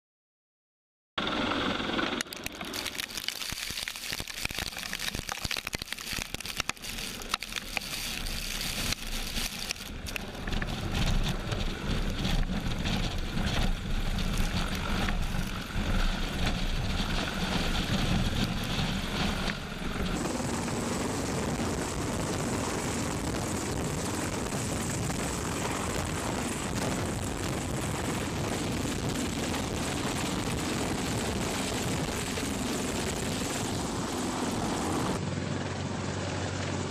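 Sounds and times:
helicopter rotors and engines: 1.2 - 3.4, 6.4 - 36.9
wind buffeting microphone: 8.7 - 35.2.

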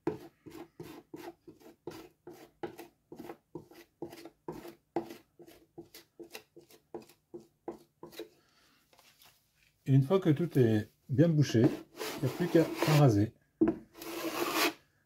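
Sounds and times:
metal spatula scraping plaster: 0.0 - 8.4, 11.4 - 13.2, 13.9 - 14.8.

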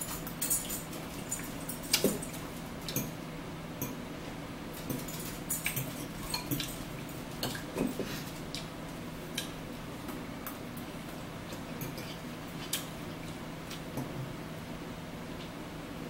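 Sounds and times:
faint steady hum: 0.0 - 16.0
chewing and mouth sounds: 9.3 - 14.2.

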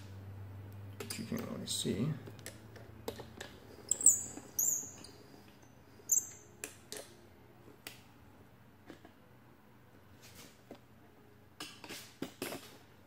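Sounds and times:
short high-pitched chirps: 3.9 - 5.1.

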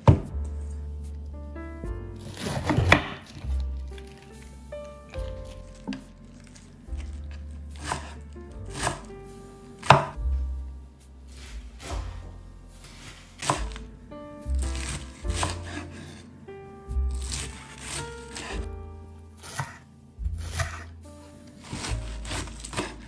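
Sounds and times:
knife slicing cabbage on wood: 2.2 - 3.5, 7.8 - 9.1, 12.8 - 13.8, 14.6 - 16.2, 17.1 - 18.7, 19.4 - 19.8, 20.4 - 20.9, 21.6 - 23.0.

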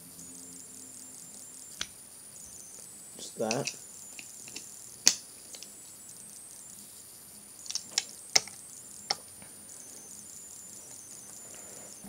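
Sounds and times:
screwdriver clicking against metal: 3.4 - 4.6.

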